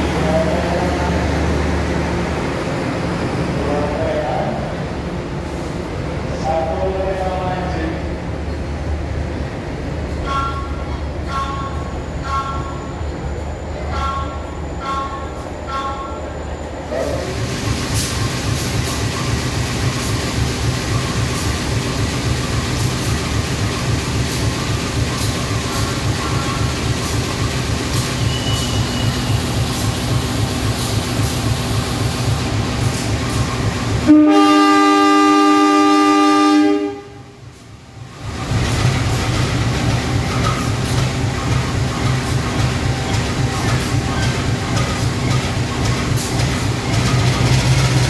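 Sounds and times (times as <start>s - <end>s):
diesel locomotive engine rumble: 0.0s - 48.0s
train horn blast: 34.0s - 37.4s.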